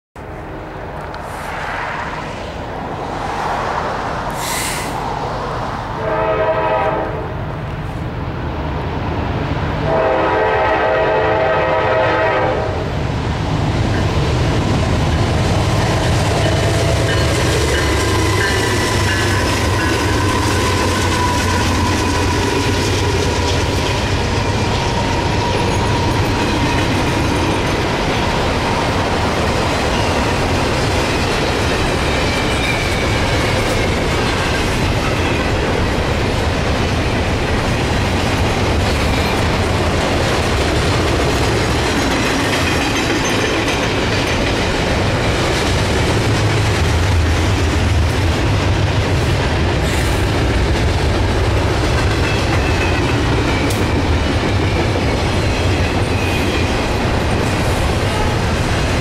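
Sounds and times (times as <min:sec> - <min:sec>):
locomotive engines rumbling: 0:00.2 - 0:59.0
locomotive air horn: 0:06.0 - 0:07.4, 0:09.8 - 0:12.9
train wheel clatter: 0:13.8 - 0:59.0.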